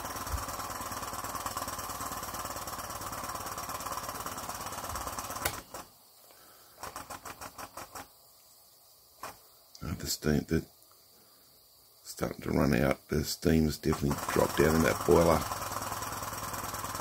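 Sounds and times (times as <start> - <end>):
model steam engine chattering: 0.0 - 5.6, 6.8 - 8.1, 12.6 - 17.0.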